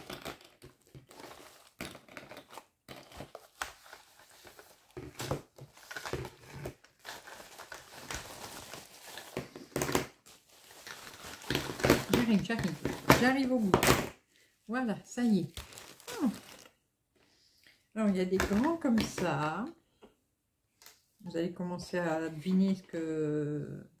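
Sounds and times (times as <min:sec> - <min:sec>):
packing wrap crinkling: 0:00.0 - 0:13.8, 0:15.4 - 0:16.8.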